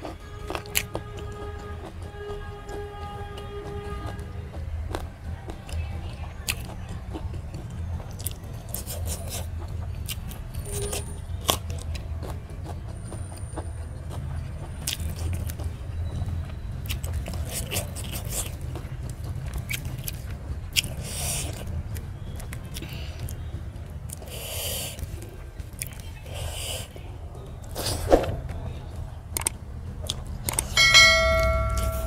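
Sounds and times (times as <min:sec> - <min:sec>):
chewing and mouth clicks: 0:00.0 - 0:26.8, 0:29.3 - 0:30.8
steady low hum: 0:30.7 - 0:32.0.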